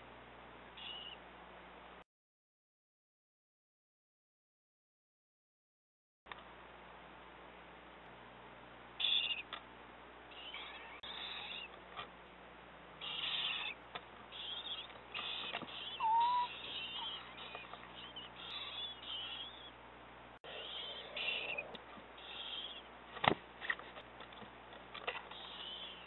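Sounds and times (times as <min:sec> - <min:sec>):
owlets hissing begging calls: 0:13.0 - 0:19.8, 0:20.5 - 0:22.9.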